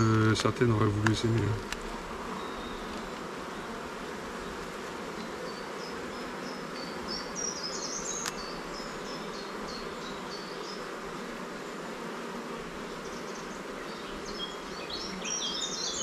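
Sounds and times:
honeybees buzzing: 0.0 - 16.0.

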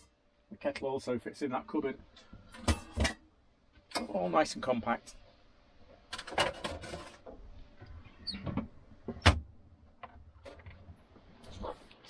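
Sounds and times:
cooking gear clattering in cupboard: 6.1 - 7.2.

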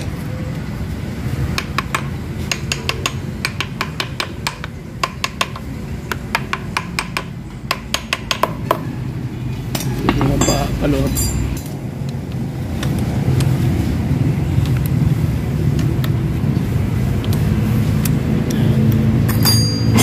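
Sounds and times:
metal tools clicking on bolts: 9.7 - 11.8, 19.2 - 20.0.

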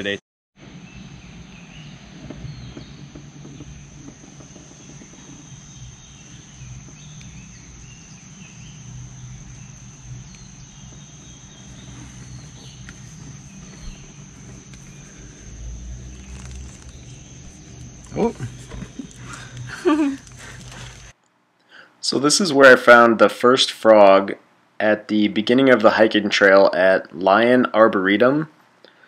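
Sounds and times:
low rumble: 0.7 - 21.1
high-pitched drone: 3.0 - 21.1.

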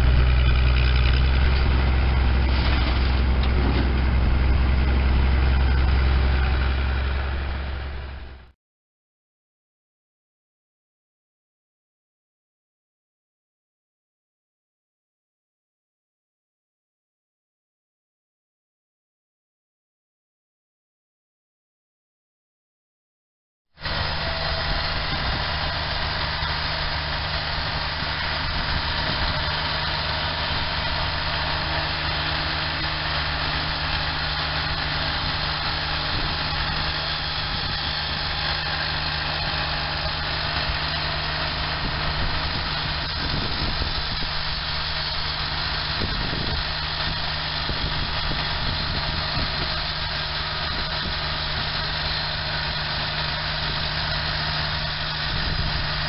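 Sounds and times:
sawmill engine running: 0.0 - 8.5, 23.8 - 56.0
saw cutting log: 23.8 - 56.0.

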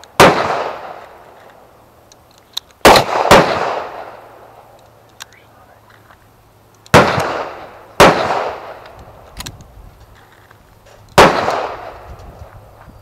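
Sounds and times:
loud gunshots with echo: 0.2 - 1.0, 2.8 - 4.3, 6.9 - 8.8, 11.2 - 12.1.

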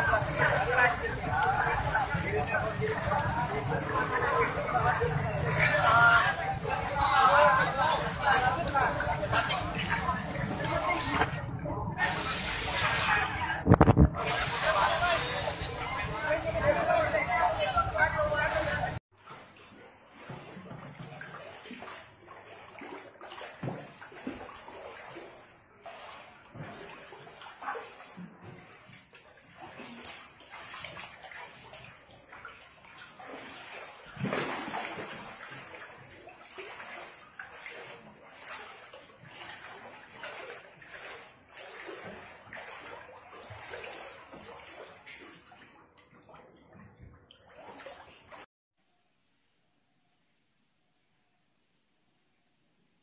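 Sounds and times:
water sloshing: 0.0 - 16.3, 18.4 - 48.5
small water splashes: 19.1 - 48.5.

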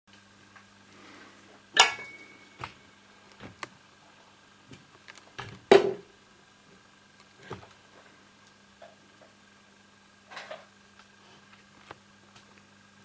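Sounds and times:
steady low hum: 0.1 - 13.0.

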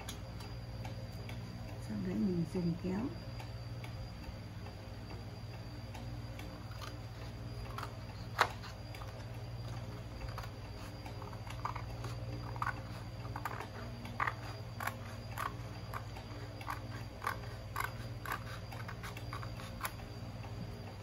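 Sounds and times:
scissors snipping paper: 6.6 - 20.1.

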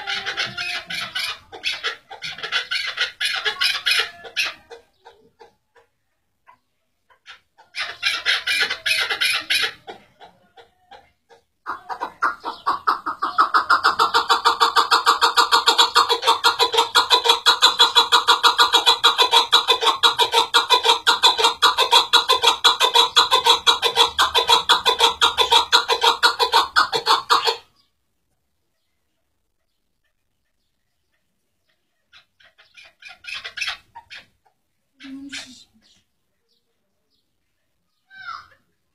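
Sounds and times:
partridge calling: 11.0 - 27.9, 28.9 - 36.6.

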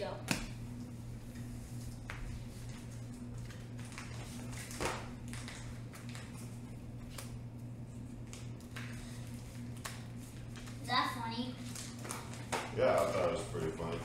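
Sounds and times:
steady low hum: 0.0 - 14.0
cards tapping and sliding on floor: 2.0 - 6.4.

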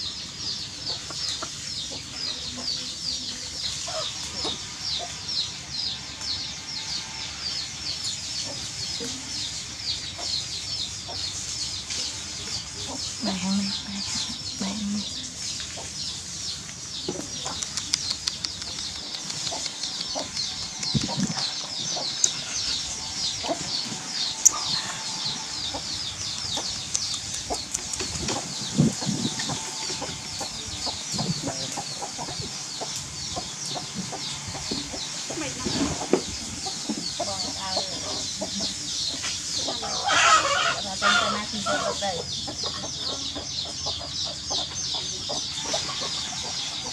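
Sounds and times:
small birds chirping: 0.0 - 46.9
sharp clicks: 17.4 - 21.4.

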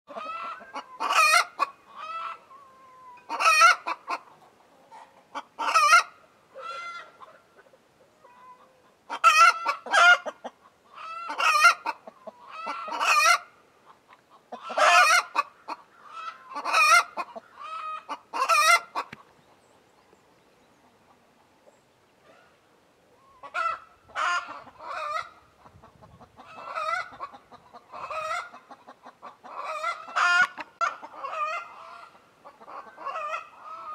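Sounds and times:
hen cackling: 0.1 - 19.3, 23.2 - 33.9.

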